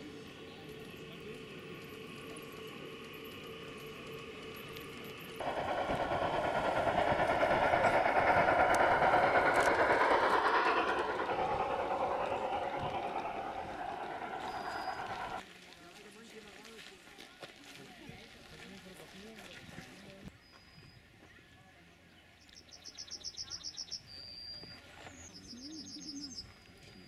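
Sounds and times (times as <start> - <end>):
model train wheels clattering on rails: 1.8 - 15.4.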